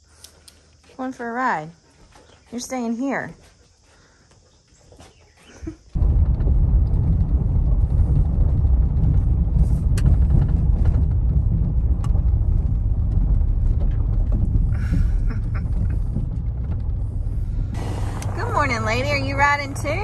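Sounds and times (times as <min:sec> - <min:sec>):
engine and tyre rumble: 0:06.0 - 0:20.0.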